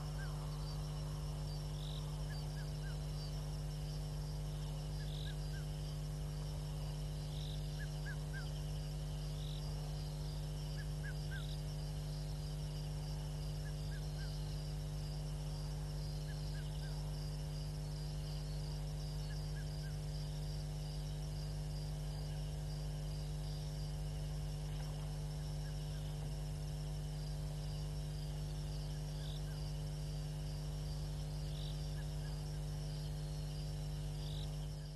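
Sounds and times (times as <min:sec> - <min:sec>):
short higher insect call: 0:00.0 - 0:12.4
crickets trilling: 0:00.0 - 0:34.9
steady low hum: 0:00.0 - 0:34.9.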